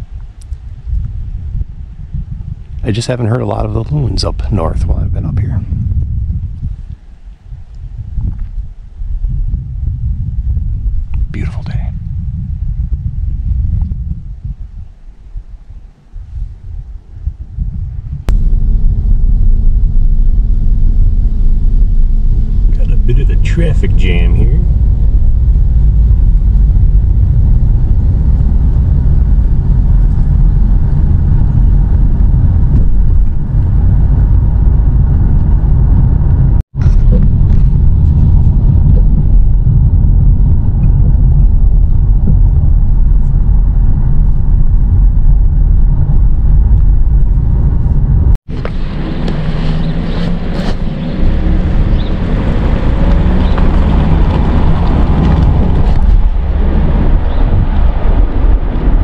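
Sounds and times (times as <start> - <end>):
wind on microphone: 0.0 - 59.0
tyre and engine rumble: 16.7 - 59.0.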